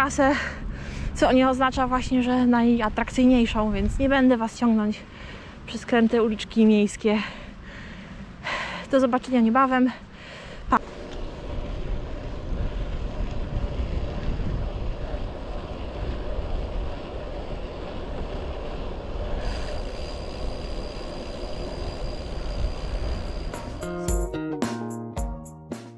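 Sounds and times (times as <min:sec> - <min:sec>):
wind buffeting microphone: 0:00.0 - 0:04.8, 0:10.5 - 0:23.8
road and tyre noise: 0:00.0 - 0:24.0.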